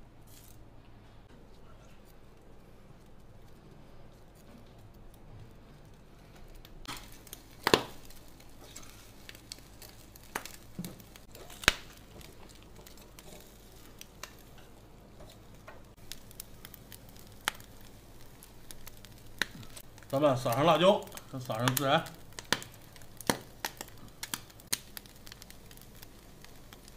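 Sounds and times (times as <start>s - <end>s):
meat sizzling on grill: 6.6s - 26.9s.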